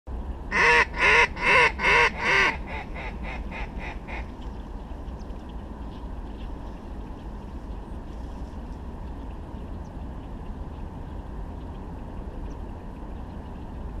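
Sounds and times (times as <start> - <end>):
duck quacking: 0.5 - 4.2.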